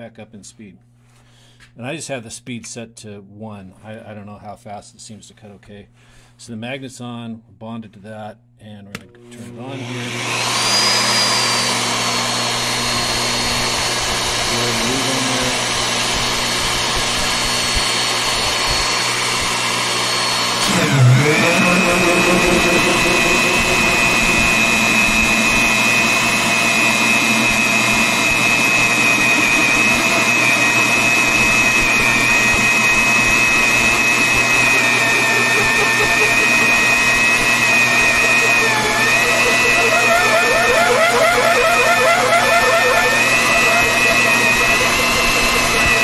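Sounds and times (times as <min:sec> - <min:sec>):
cutter boring into steel: 0:09.3 - 0:46.0
drill motor high whine: 0:09.4 - 0:46.0.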